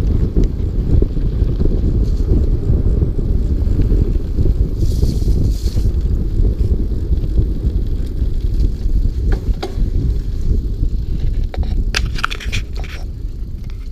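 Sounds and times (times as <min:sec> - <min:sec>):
bike clicks and rattles: 0:00.0 - 0:13.9
bike tyre rumble: 0:00.0 - 0:13.9
wind buffeting microphone: 0:00.0 - 0:13.9.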